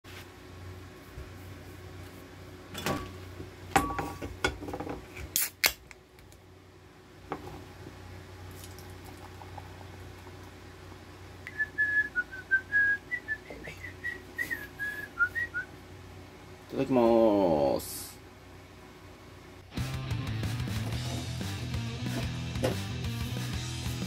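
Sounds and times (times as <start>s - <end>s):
can cracked open with hiss: 5.3s - 5.8s
beer pouring: 8.5s - 10.6s
person whistling: 11.5s - 15.7s.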